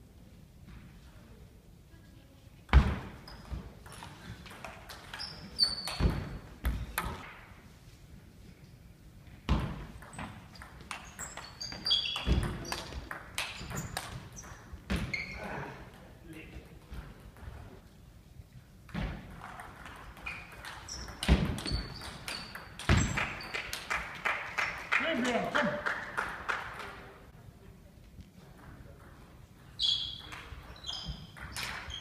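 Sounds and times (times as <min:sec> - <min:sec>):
sneakers squeaking on floor: 0:02.7 - 0:07.2, 0:09.4 - 0:15.6, 0:18.9 - 0:23.8, 0:29.6 - 0:32.0.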